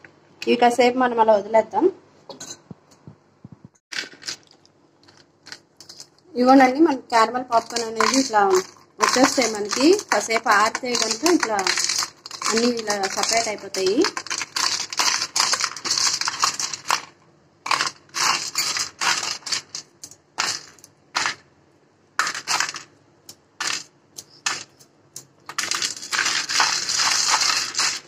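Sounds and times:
popcorn crackling and rustling: 0:03.9 - 0:06.2, 0:07.2 - 0:21.5, 0:22.2 - 0:28.0
popcorn pieces dropping on plate: 0:07.5 - 0:21.4, 0:22.2 - 0:28.0.

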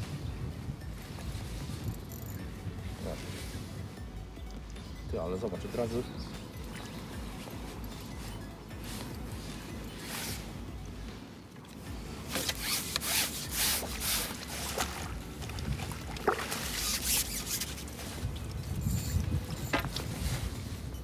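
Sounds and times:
fish splashing at surface: 0:13.6 - 0:17.8.

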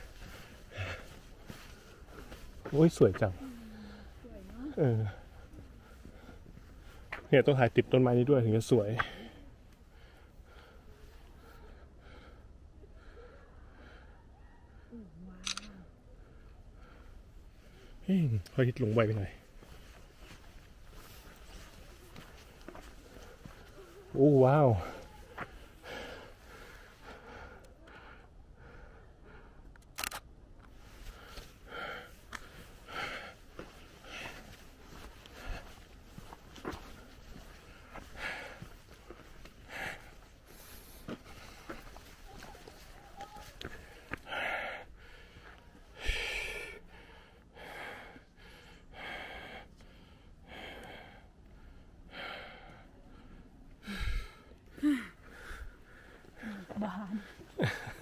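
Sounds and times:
person breathing heavily: 0:00.0 - 0:07.3, 0:09.0 - 0:14.3, 0:19.4 - 0:29.6, 0:30.8 - 0:58.0
footsteps on paved path: 0:00.0 - 0:10.7, 0:17.4 - 0:27.6, 0:30.7 - 0:46.7, 0:53.8 - 0:58.0
camera handling noise: 0:29.8 - 0:30.8.

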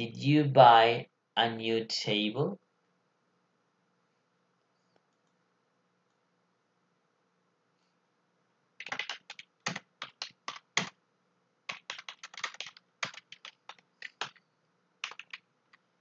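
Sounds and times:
computer keyboard typing: 0:08.8 - 0:11.0, 0:11.7 - 0:14.4, 0:15.0 - 0:15.8.

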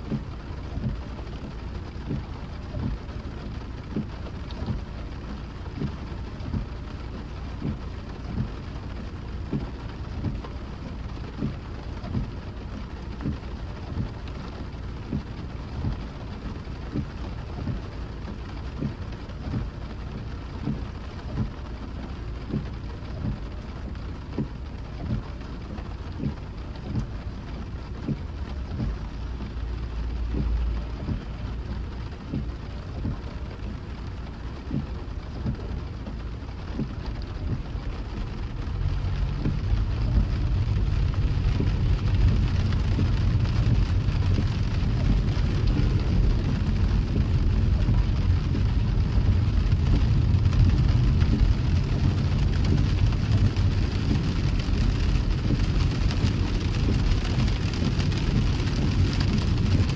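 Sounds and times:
rain on a car: 0:00.0 - 0:59.9
road noise hiss: 0:00.0 - 0:59.9.

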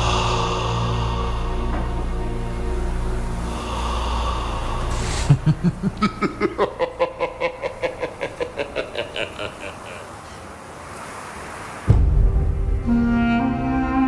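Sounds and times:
low sustained drone: 0:00.0 - 0:07.4.

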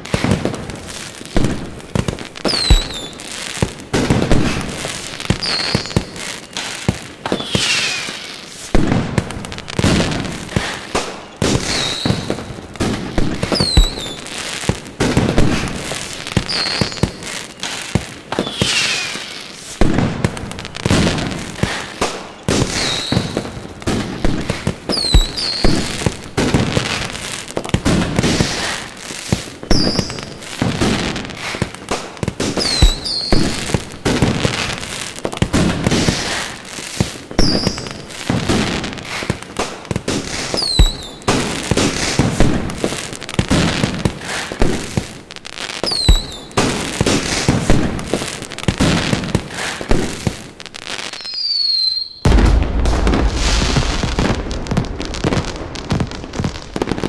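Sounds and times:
firework crackling: 0:00.0 - 0:57.0
firework shells bursting: 0:00.1 - 0:45.1, 0:51.2 - 0:57.0
falling whistles: 0:02.5 - 0:03.2, 0:05.4 - 0:06.2, 0:07.3 - 0:08.7, 0:11.6 - 0:12.3, 0:13.6 - 0:14.2, 0:18.3 - 0:19.7, 0:22.8 - 0:23.4, 0:24.9 - 0:25.8, 0:32.6 - 0:33.5, 0:40.6 - 0:41.2, 0:45.9 - 0:46.5, 0:51.1 - 0:52.4.

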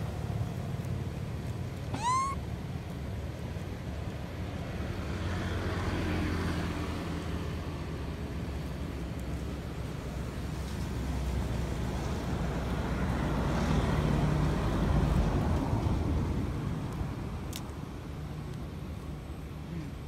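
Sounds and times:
vehicle passing: 0:04.4 - 0:17.4.

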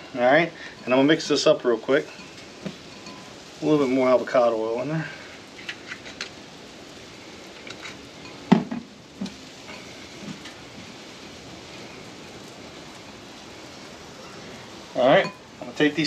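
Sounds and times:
steady hiss: 0:00.0 - 0:16.0
glass bottle set down on table: 0:08.5 - 0:08.9.

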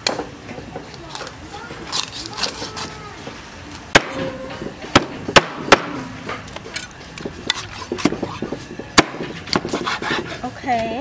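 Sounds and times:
cleaver chopping on wooden board: 0:04.9 - 0:06.1, 0:07.5 - 0:10.3.

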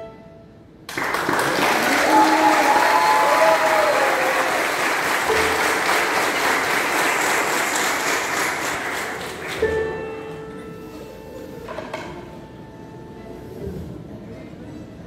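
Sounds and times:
violin held note: 0:00.0 - 0:00.6
audience applauding: 0:00.9 - 0:09.8.

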